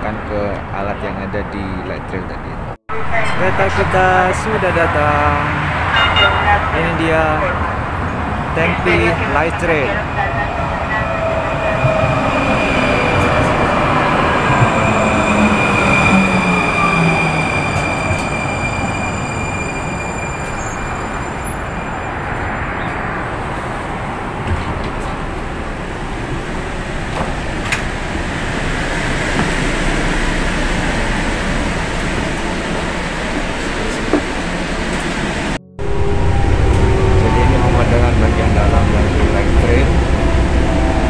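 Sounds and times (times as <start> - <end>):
train rolling rumble: 0.0 - 41.0
train electric drive whine: 23.8 - 41.0.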